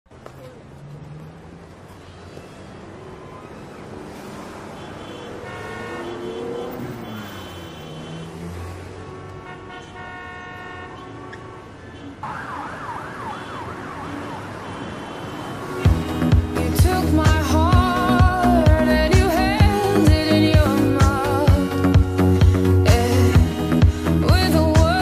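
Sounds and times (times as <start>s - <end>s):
yelp siren wailing: 12.2s - 15.7s.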